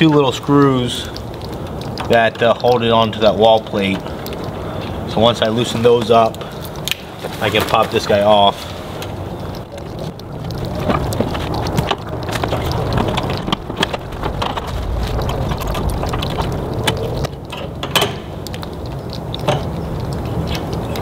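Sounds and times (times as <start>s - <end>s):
steady low rumble: 0.0s - 6.9s, 8.7s - 21.0s.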